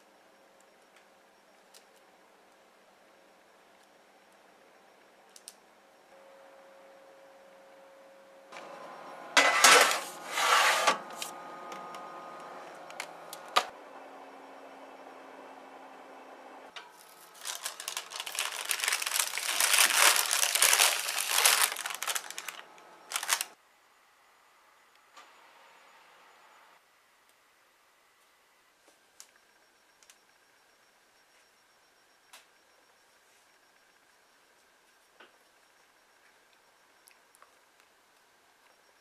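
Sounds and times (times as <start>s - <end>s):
electric oven hum: 0.0s - 39.0s
dense crinkling and rattling: 16.9s - 23.6s.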